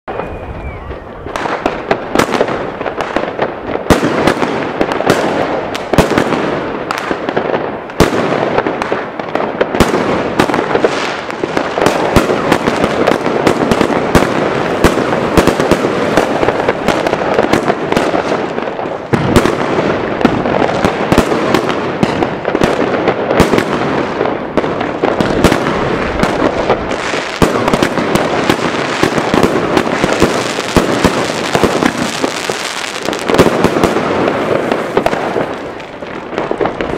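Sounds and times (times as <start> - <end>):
fireworks crackle: 0.1 - 36.9.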